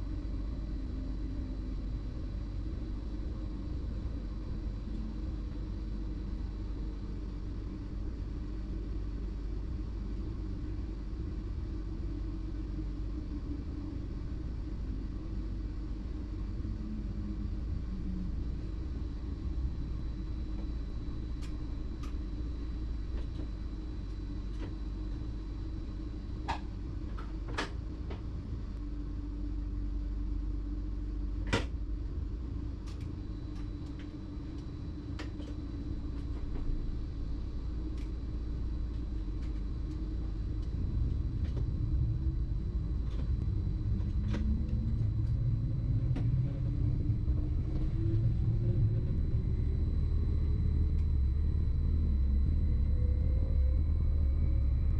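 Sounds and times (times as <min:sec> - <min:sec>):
rising whine: 0:32.9 - 0:54.9
electric train rumbling: 0:35.9 - 0:54.9.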